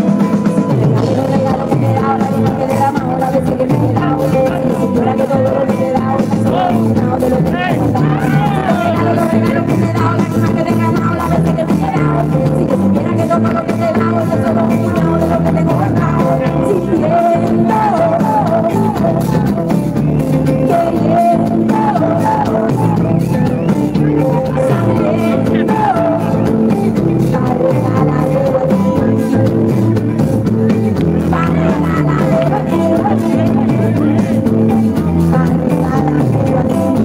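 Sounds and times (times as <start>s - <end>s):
drums: 0.0s - 37.0s
electric guitar: 0.0s - 37.0s
person singing: 0.0s - 37.0s.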